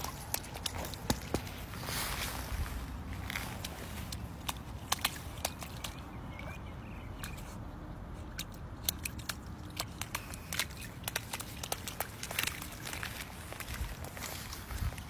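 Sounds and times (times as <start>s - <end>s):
low steady background rumble: 0.0s - 15.0s
puppy splashing in a puddle: 0.0s - 15.0s.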